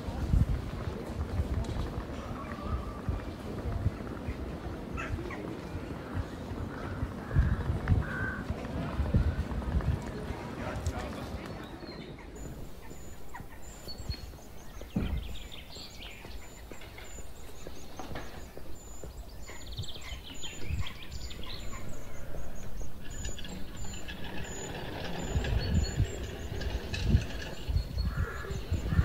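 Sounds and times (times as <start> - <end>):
birds calling and chattering: 0.0 - 29.0
low thumps: 12.4 - 19.2.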